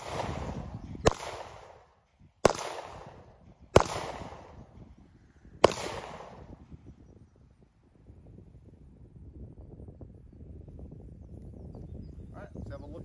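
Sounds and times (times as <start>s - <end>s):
pistol shots with echo: 0.0s - 5.0s, 5.6s - 6.8s.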